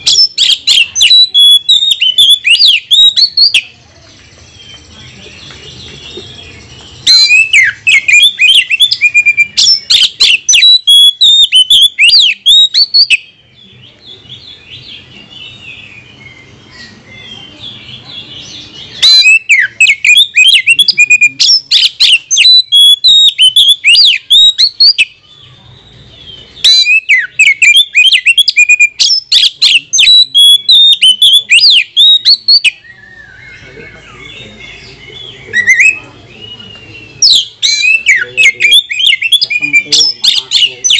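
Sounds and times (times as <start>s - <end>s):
bird singing whistles: 0.0s - 3.7s, 6.3s - 13.4s, 18.9s - 25.2s, 25.9s - 40.9s
soft bird twittering: 0.0s - 40.9s.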